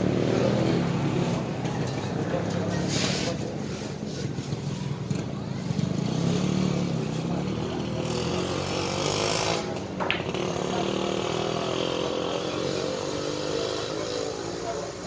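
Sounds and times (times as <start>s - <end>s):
small petrol engine running: 4.0s - 15.0s.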